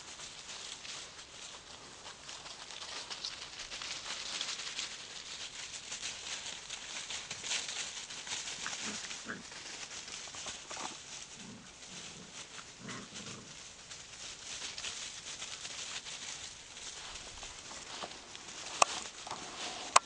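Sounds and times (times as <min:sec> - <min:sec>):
dry leaves rustling: 0:00.0 - 0:20.0.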